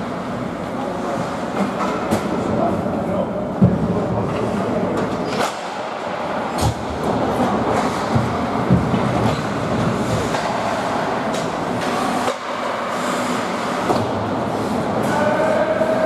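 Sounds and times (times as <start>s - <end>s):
hockey sticks or puck clacking: 6.5s - 14.2s.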